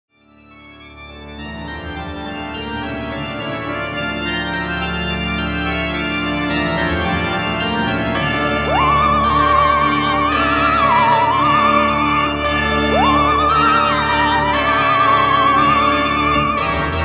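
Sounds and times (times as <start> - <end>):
organ chords: 0.2 - 17.0
high wavering tone: 8.7 - 16.6.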